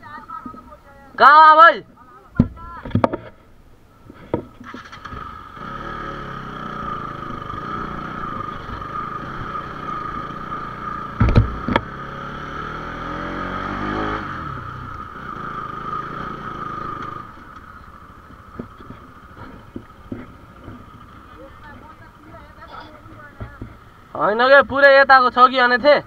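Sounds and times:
motorcycle engine revving: 4.6 - 23.4
loud knocks: 11.1 - 11.9.

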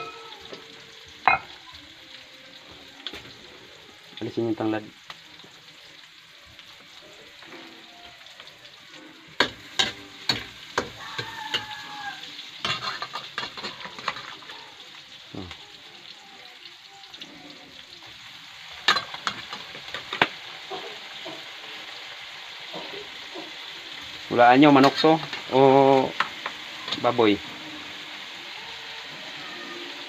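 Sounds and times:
meat sizzling in a wok: 0.0 - 30.0
metal spatula scraping a pan: 8.8 - 14.5.

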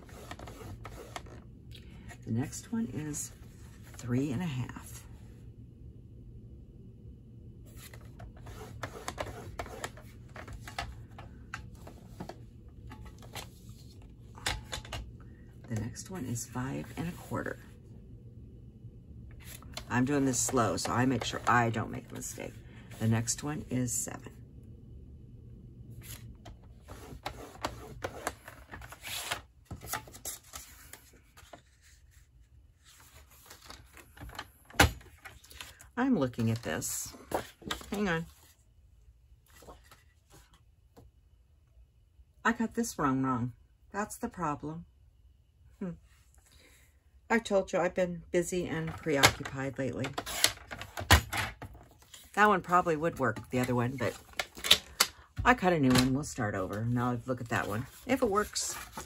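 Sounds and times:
scoring tool clicking and scraping paper: 0.0 - 1.4, 8.4 - 10.8, 26.8 - 30.0.

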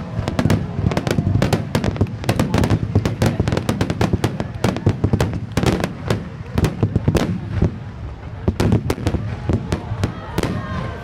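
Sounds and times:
fireworks bangs and crackles: 0.0 - 11.0.

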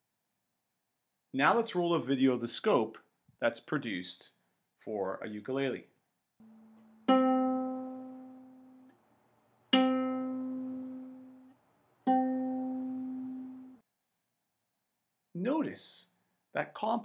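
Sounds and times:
ukulele string plucked: 6.4 - 8.9, 9.7 - 11.5, 12.1 - 13.8.

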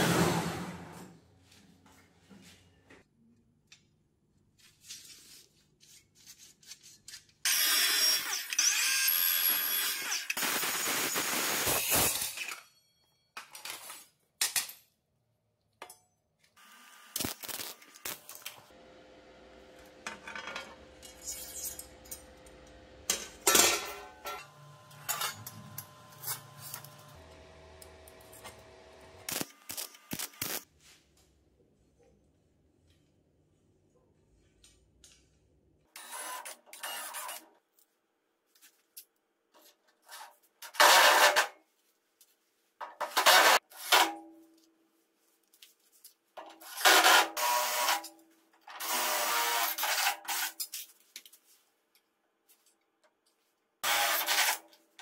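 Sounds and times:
power tool cutting metal: 7.5 - 12.2, 16.6 - 30.6, 46.8 - 48.1, 48.8 - 50.6, 53.8 - 54.6.

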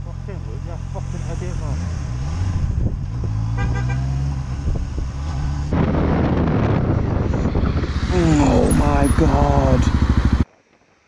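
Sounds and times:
motorcycle engine running: 0.0 - 10.5
wind rushing: 2.1 - 3.5, 4.3 - 10.4
horn short toots: 3.5 - 4.2.

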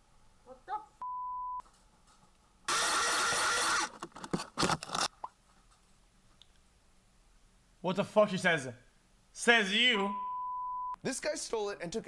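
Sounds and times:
censor bleep: 1.0 - 1.6, 10.0 - 11.0.

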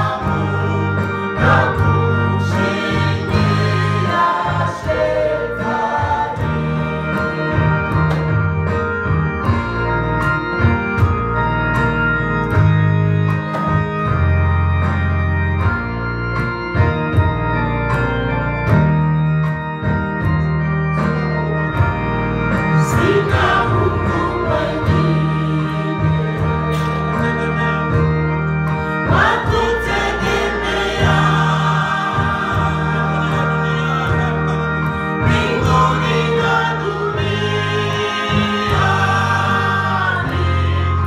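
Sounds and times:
gospel choir singing: 0.0 - 10.2, 22.5 - 41.0
keyboard organ chords and bass: 0.0 - 41.0
programmed drum beat: 29.1 - 34.6.

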